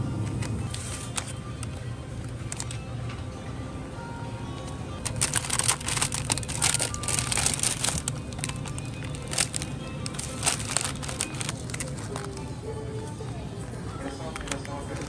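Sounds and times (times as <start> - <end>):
soft background music: 0.0 - 15.0
plastic packaging crinkling: 2.5 - 2.8, 5.0 - 12.5, 14.4 - 15.0.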